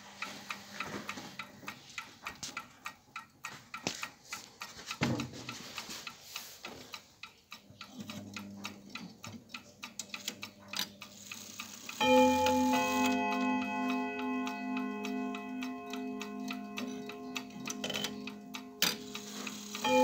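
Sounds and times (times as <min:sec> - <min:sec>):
grandfather clock ticking: 0:00.0 - 0:20.0
clock chime ringing: 0:11.9 - 0:20.0.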